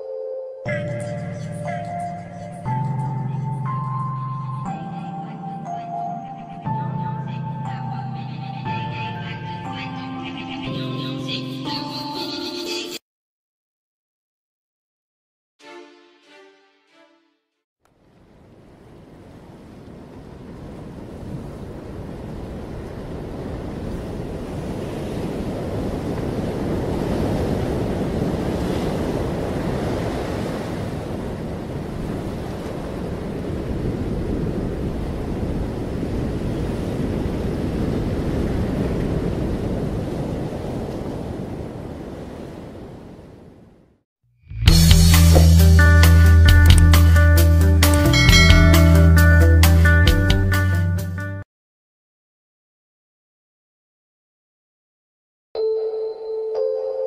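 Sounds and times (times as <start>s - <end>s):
wind: 0.0s - 9.8s, 17.8s - 44.0s, 45.2s - 49.8s
ocean waves washing: 0.6s - 10.9s, 18.0s - 44.0s, 44.9s - 50.2s.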